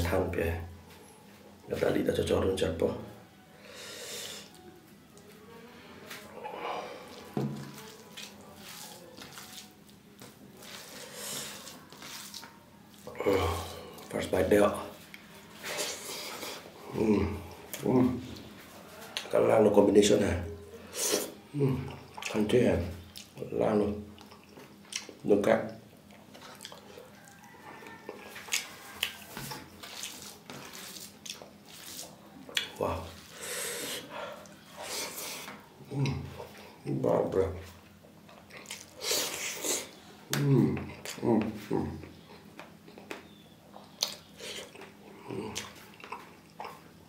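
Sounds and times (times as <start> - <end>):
hand mixing food on steel plate: 7.0 - 19.4, 26.2 - 36.8.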